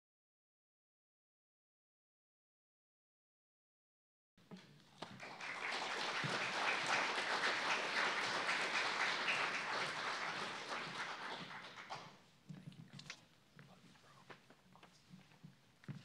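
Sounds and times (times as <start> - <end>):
audience applauding: 5.0 - 12.2.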